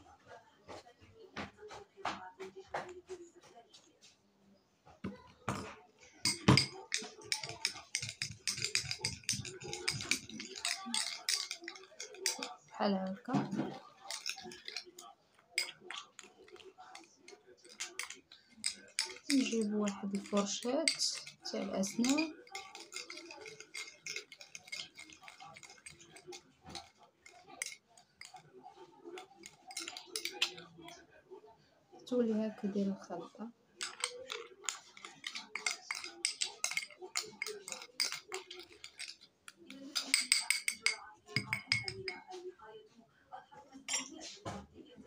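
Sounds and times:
metal spoon scraping ceramic bowl: 6.3 - 15.0, 15.6 - 28.5, 29.2 - 30.8, 33.8 - 42.2, 43.9 - 44.3
spoon knocking bowl: 6.3 - 15.0, 15.6 - 28.4, 29.2 - 30.7, 33.8 - 42.2.

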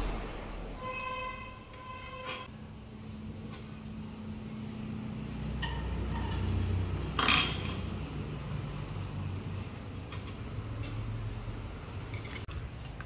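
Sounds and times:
metal utensils clinking on pot: 5.6 - 7.9.

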